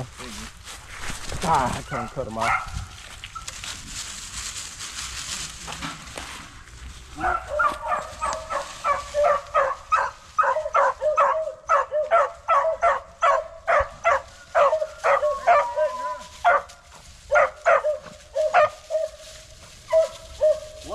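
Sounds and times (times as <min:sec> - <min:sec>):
dry leaves rustling underfoot: 0:00.0 - 0:20.9
dog yelping: 0:07.2 - 0:16.7, 0:17.3 - 0:19.2, 0:19.9 - 0:20.9.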